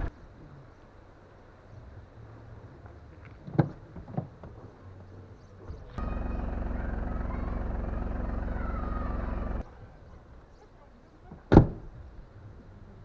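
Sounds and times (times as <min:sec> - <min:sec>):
car engine running: 0:05.8 - 0:09.6.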